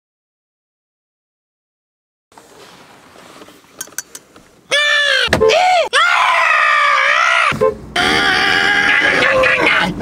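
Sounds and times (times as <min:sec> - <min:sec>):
man screaming: 0:04.7 - 0:10.0.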